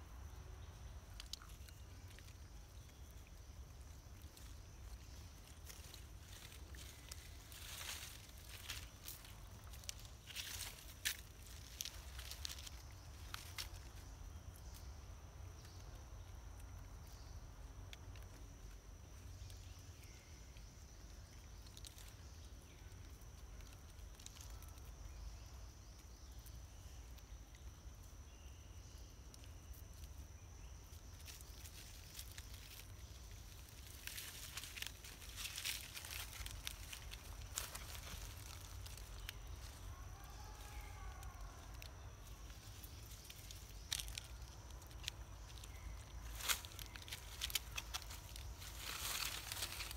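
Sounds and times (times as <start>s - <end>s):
animals rustling dry leaves: 1.1s - 14.9s, 21.0s - 24.9s, 29.4s - 49.9s.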